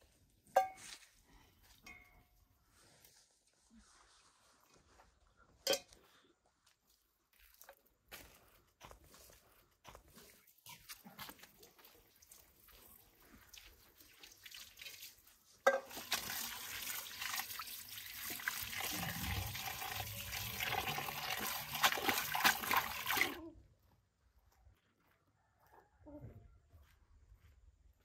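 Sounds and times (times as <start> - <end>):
water running: 12.1 - 23.4.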